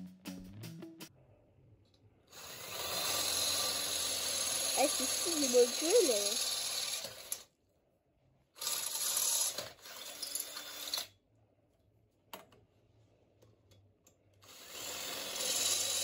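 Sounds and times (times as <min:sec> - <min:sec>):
electric drill boring metal: 0:02.3 - 0:07.5, 0:08.6 - 0:11.1, 0:14.4 - 0:16.0.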